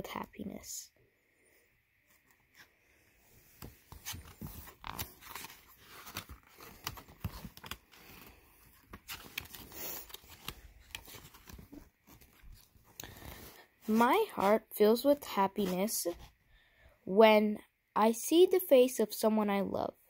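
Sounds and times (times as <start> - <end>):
book pages turning: 2.0 - 16.4.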